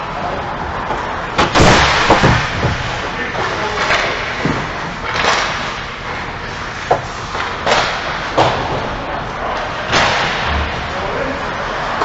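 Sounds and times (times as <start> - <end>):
hockey sticks clacking: 0.7 - 10.8
heavy thuds: 1.4 - 3.3
sharp crack: 1.4 - 4.4, 5.0 - 5.9, 9.9 - 10.8.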